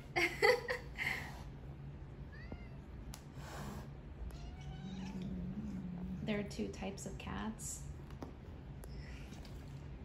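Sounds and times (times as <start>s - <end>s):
cat crying: 4.3s - 5.4s
cat meowing faintly: 4.3s - 5.8s.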